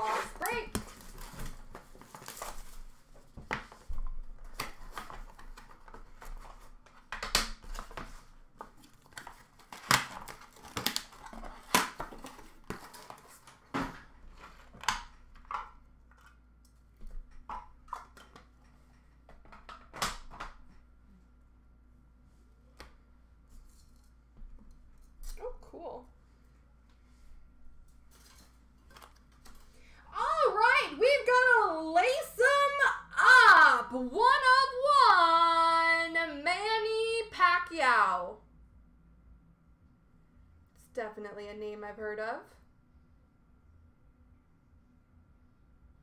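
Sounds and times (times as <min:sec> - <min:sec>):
plastic wrap crinkling and tearing: 0:08.8 - 0:13.6.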